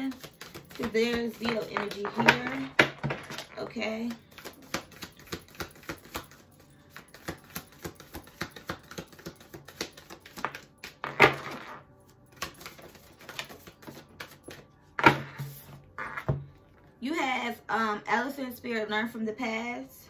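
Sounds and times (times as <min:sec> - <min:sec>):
cards being shuffled: 0:00.0 - 0:14.6.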